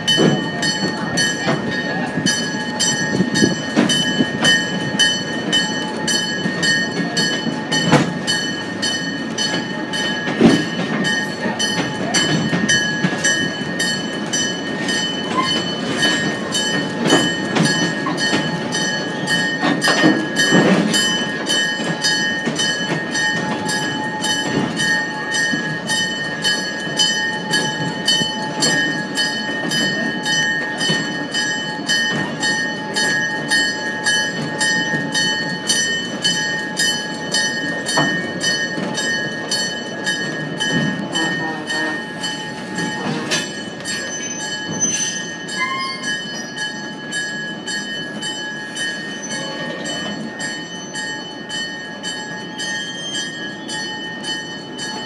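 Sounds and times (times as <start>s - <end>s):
regular rail clicking: 0.0s - 55.0s
train running on track: 0.0s - 55.0s
high ringing tone: 21.0s - 55.0s.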